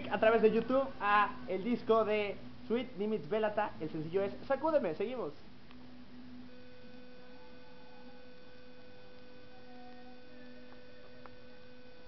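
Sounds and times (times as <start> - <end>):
electrical hum: 0.0 - 12.0.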